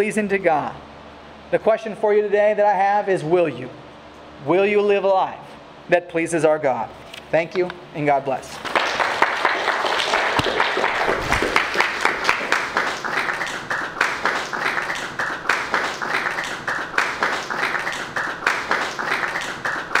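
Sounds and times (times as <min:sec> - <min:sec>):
congregation applauding: 0:08.6 - 0:20.0.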